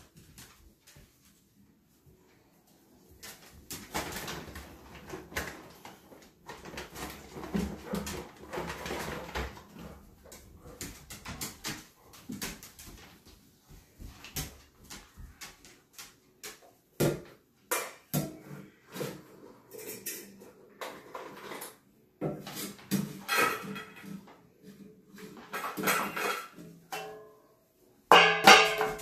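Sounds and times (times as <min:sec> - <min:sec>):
metal bowl clinking on tile: 0:28.1 - 0:29.0.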